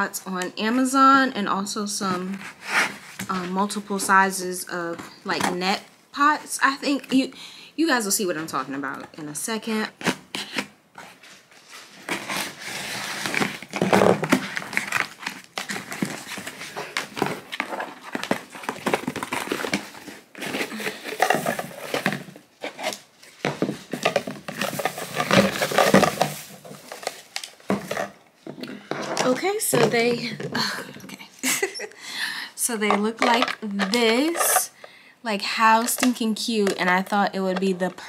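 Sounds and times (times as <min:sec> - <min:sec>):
plastic packaging crinkling: 0:10.4 - 0:28.2.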